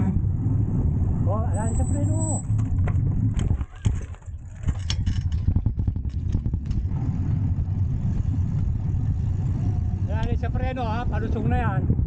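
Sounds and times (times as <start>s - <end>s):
wind buffeting microphone: 0.0s - 12.0s
clicks and rattles: 2.6s - 6.8s.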